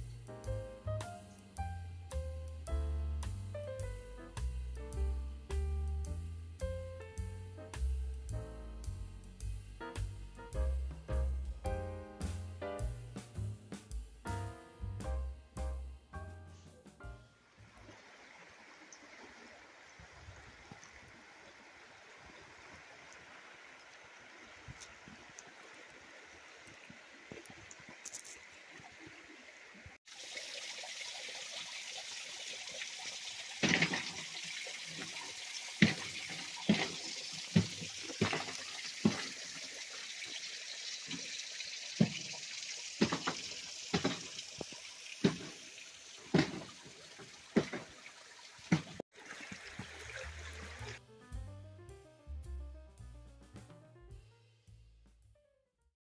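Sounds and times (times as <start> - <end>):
river flowing: 17.4 - 51.0.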